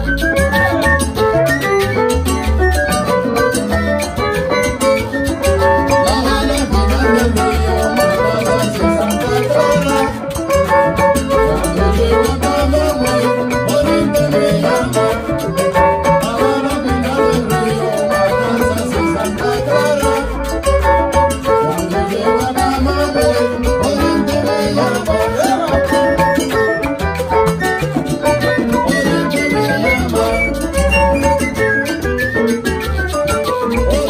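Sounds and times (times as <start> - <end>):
salsa band playing: 0.0 - 34.0.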